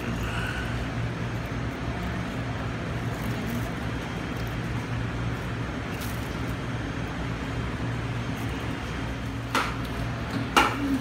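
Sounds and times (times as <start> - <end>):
low machinery hum: 0.0 - 11.0
plastic bag rustling: 2.0 - 6.8.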